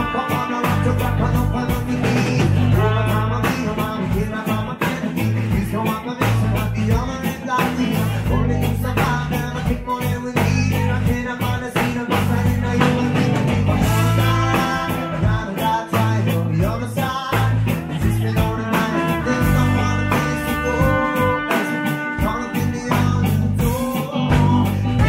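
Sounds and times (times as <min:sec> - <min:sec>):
trumpet: 0:00.0 - 0:04.2, 0:13.8 - 0:16.2, 0:18.4 - 0:24.0
bass guitar: 0:00.0 - 0:25.0
drum beat: 0:00.0 - 0:25.0
electric guitar: 0:00.0 - 0:25.0
person singing: 0:00.0 - 0:25.0.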